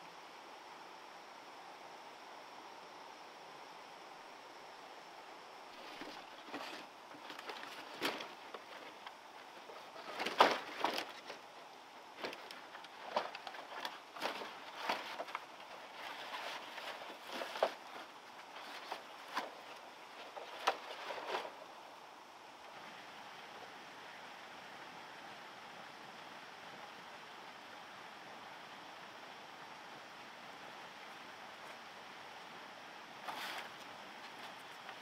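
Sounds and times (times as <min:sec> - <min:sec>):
steady hiss: 0:00.0 - 0:35.0
bamboo poles knocking and rattling: 0:05.8 - 0:21.6
crunching on dry leaves: 0:05.8 - 0:21.6.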